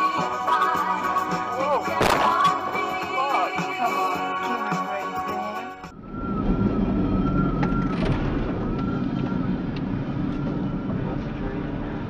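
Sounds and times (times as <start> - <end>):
vehicle engine and road rumble: 5.7 - 12.0
faint high rising tone: 5.8 - 12.0.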